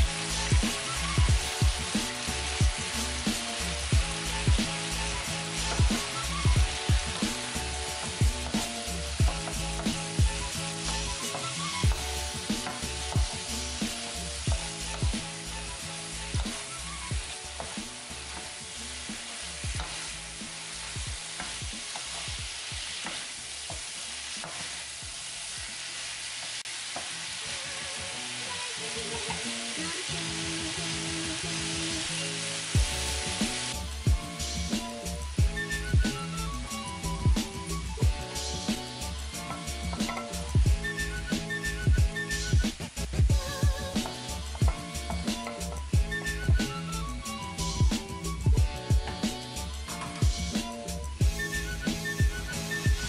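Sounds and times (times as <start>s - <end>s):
vegetables sizzling in a wok: 0.0s - 53.0s.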